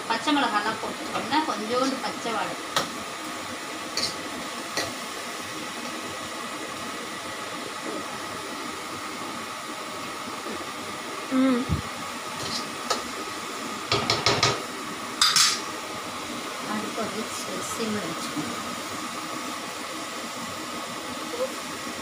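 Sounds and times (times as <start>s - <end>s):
food frying in a wok: 0.0s - 22.0s
ladle scraping a wok: 12.4s - 12.8s.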